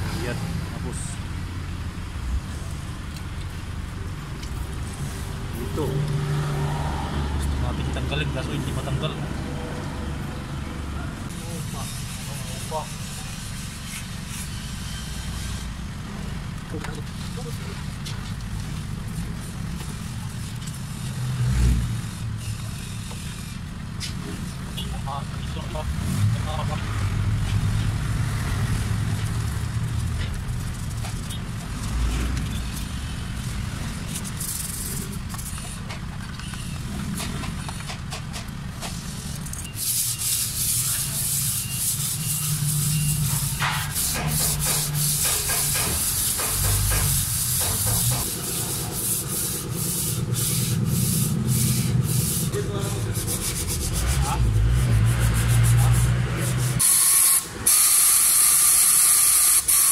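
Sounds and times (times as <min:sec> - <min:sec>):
brushes scrubbing metal: 0:11.4 - 0:14.7, 0:39.8 - 0:58.4
compressed-air blow gun hissing: 0:43.6 - 0:52.6, 0:56.7 - 0:59.9.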